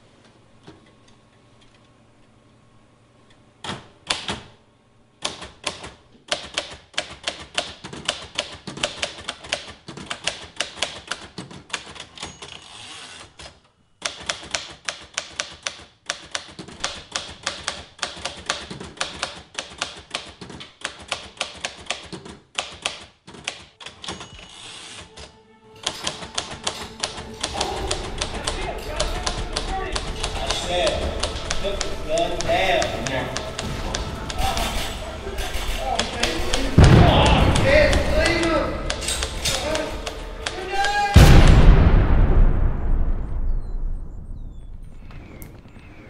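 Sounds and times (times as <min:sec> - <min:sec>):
manual typewriter keys striking: 0:05.2 - 0:12.8, 0:14.0 - 0:24.7, 0:25.8 - 0:34.8
music: 0:23.8 - 0:43.2.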